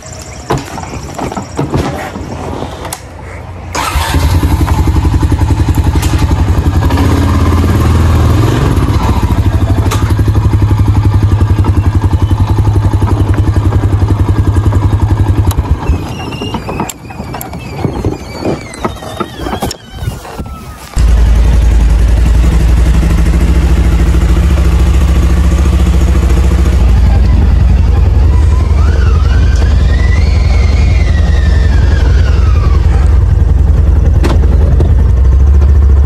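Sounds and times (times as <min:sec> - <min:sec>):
quad bike engine running: 0:03.8 - 0:17.4, 0:21.0 - 0:36.0.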